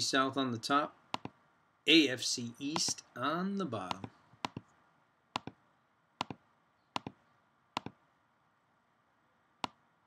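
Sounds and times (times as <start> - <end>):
computer mouse double clicks: 7.8 - 8.0.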